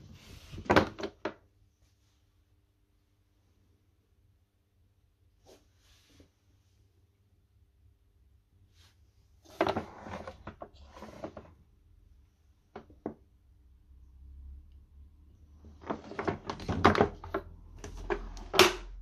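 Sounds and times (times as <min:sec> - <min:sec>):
plastic knocks and rattles: 0:15.6 - 0:19.0.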